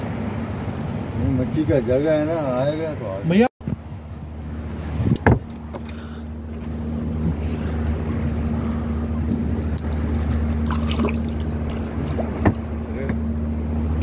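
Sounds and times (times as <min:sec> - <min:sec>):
boat engine humming: 0:00.0 - 0:14.0.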